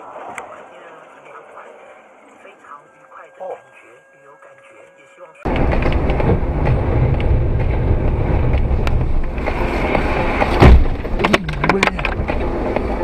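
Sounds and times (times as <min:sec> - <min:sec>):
car road and engine noise: 0:00.0 - 0:13.0
loud thump: 0:05.5 - 0:12.4.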